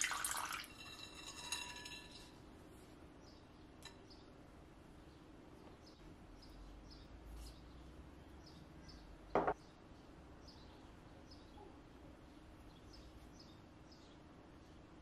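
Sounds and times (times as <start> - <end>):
faint bird chirps: 5.6 - 14.2
short knock: 9.4 - 9.6.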